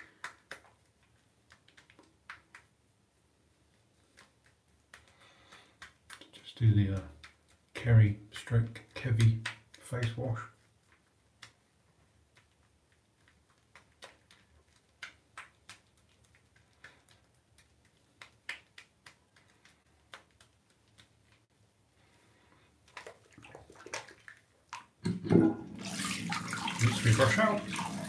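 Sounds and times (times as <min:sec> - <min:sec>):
tap water running: 0:25.0 - 0:28.0
shaving brush lathering: 0:25.6 - 0:28.0.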